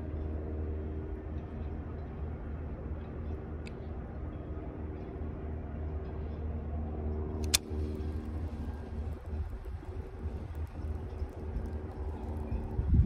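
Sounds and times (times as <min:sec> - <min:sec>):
low engine hum: 0:00.0 - 0:13.0
sharp click: 0:07.4 - 0:08.0.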